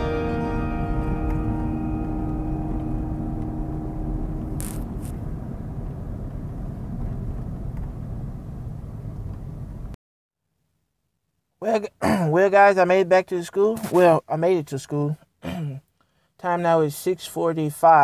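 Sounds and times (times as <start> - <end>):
short sharp sounds: 0.0 - 5.3
car road and engine rumble: 0.0 - 10.0.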